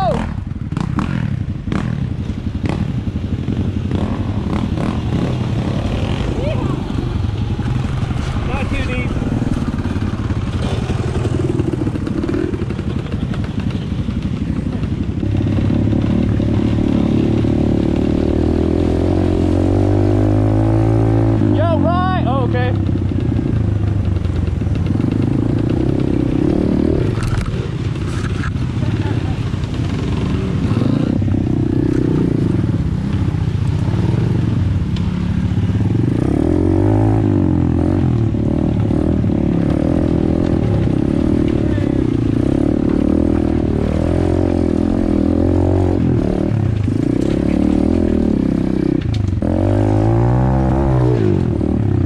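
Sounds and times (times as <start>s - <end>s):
motorbike engine running: 21.6s - 36.5s.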